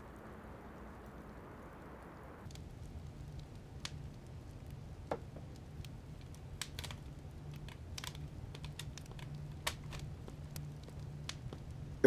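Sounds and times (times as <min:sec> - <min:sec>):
low steady hum: 0:00.0 - 0:12.0
light clicks and taps: 0:03.3 - 0:11.8.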